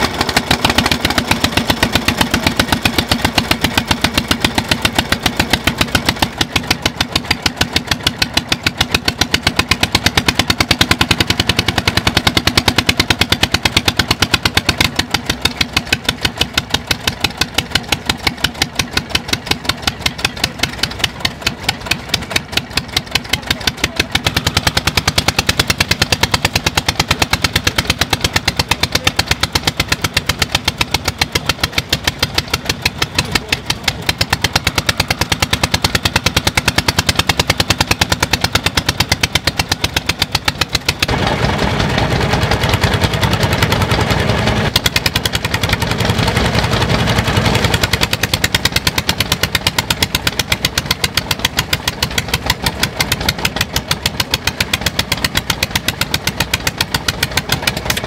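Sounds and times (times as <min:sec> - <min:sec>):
stationary engines running: 0:00.0 - 0:58.0.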